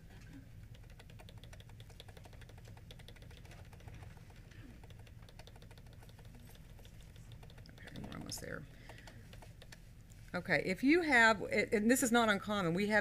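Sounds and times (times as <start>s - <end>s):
low steady hum: 0.0s - 13.0s
rapid button clicking: 4.8s - 9.8s.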